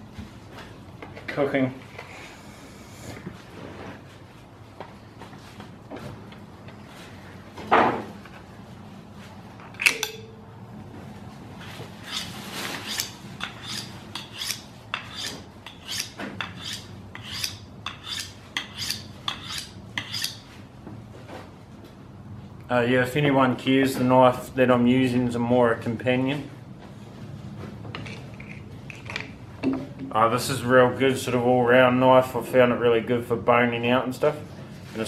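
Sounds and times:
sharp metallic clink: 9.8s - 10.4s
knife scraping on sharpening steel: 12.0s - 20.5s.

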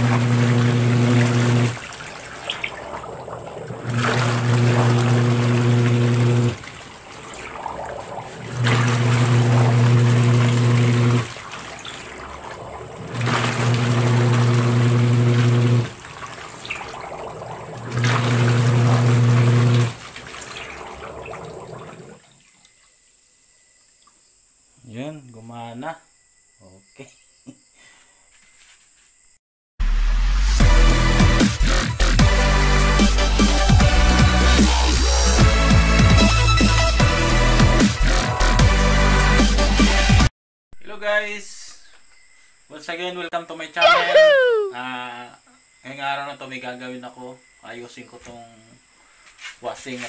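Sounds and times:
washing machine motor humming: 0.0s - 22.2s
water sloshing: 0.0s - 22.7s.

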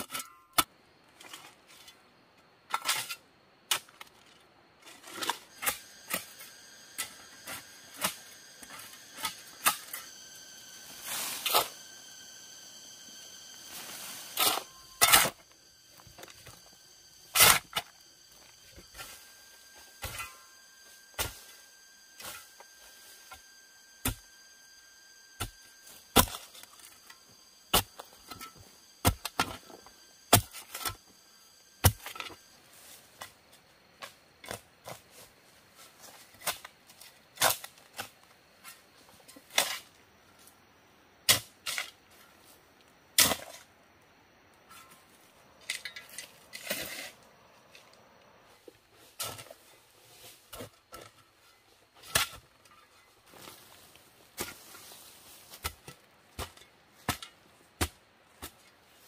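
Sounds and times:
soil scraped and tossed: 2.7s - 24.3s, 44.7s - 59.0s
shovel striking clay soil: 5.1s - 12.3s, 13.6s - 21.6s, 22.2s - 24.3s, 25.4s - 31.1s, 31.8s - 32.4s, 41.2s - 42.0s, 43.2s - 43.7s, 52.0s - 53.5s, 54.4s - 54.8s, 55.4s - 58.8s.

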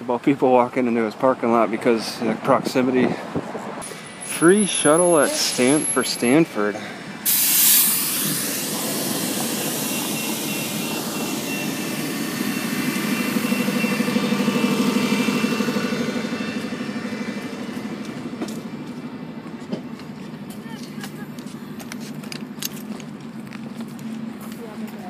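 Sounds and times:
bus engine idling: 3.3s - 25.0s
air brake hiss: 7.2s - 13.5s.

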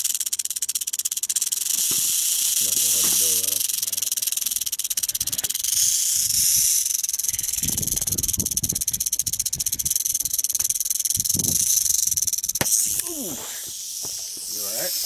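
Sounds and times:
rattlesnake rattling: 0.0s - 15.0s.

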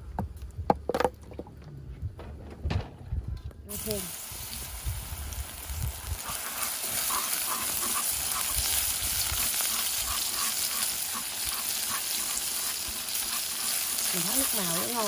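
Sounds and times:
scallions sizzling in oil: 3.7s - 15.0s
chopsticks stirring: 9.7s - 15.0s.

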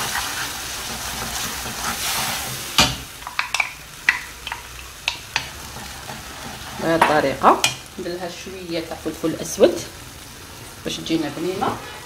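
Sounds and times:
wooden spoon stirring sauce in pan: 0.0s - 7.8s
soft sizzle: 0.0s - 12.0s.

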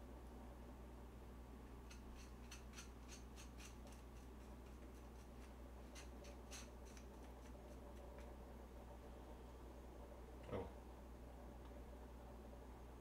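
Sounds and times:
scissors snipping noodles: 1.9s - 7.6s.

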